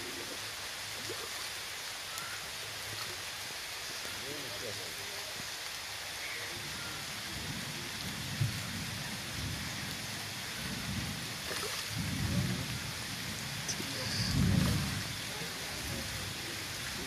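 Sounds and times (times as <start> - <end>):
heavy rain falling: 0.0 - 17.0
low rumbles: 10.8 - 17.0.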